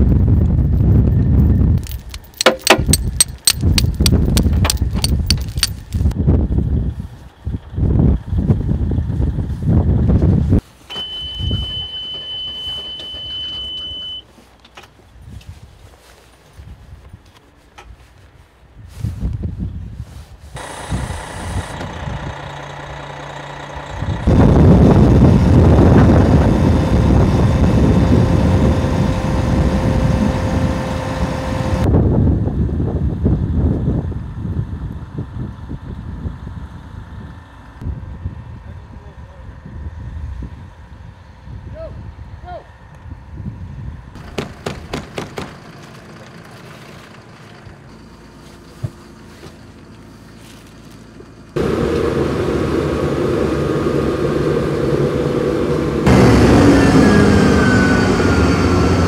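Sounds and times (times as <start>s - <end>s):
tracked vehicle idling hum: 0.2s - 59.0s
sharp knocks: 2.4s - 5.4s, 44.2s - 45.6s
truck engine idling: 20.6s - 31.9s, 44.2s - 59.0s.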